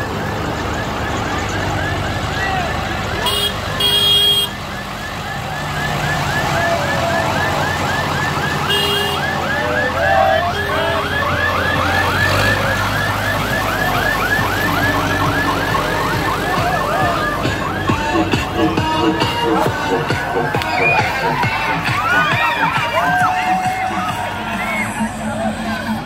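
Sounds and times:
tractor engines running: 0.0s - 26.0s
horn honk: 3.2s - 4.6s, 8.6s - 11.5s
electronic siren yelping: 4.3s - 25.0s.

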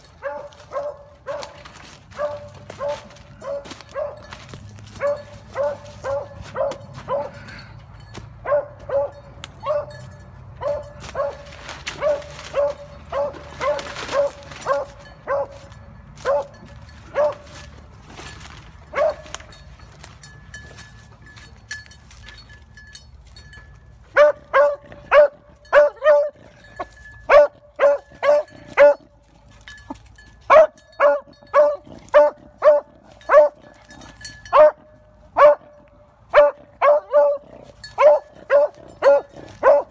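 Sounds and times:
dog baying: 36.4s - 39.9s.

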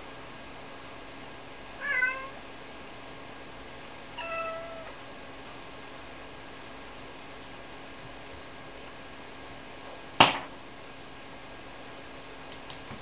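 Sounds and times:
cat meowing: 1.8s - 2.4s, 4.2s - 5.0s.

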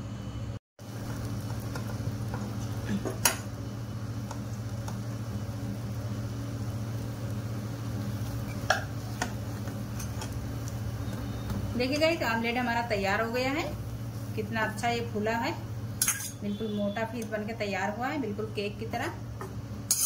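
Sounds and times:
spoons scraping a pan: 8.4s - 10.4s.

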